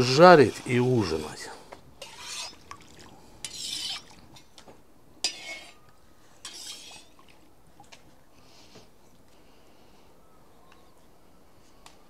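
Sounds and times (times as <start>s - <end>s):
metal skimmer scraping in oil: 0.0s - 2.8s, 3.4s - 4.5s, 5.2s - 5.8s, 6.4s - 7.3s.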